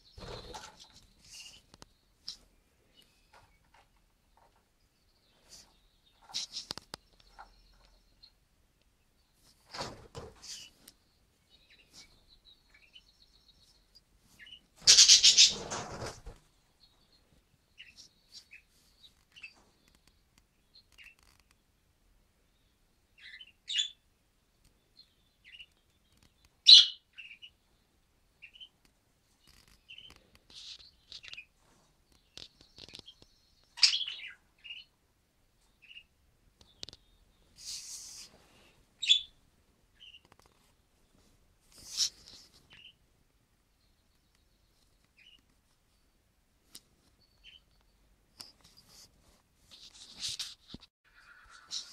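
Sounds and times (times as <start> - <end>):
budgerigars chirping: 14.4 - 15.7, 26.7 - 27.5, 33.8 - 34.9, 39.0 - 39.3.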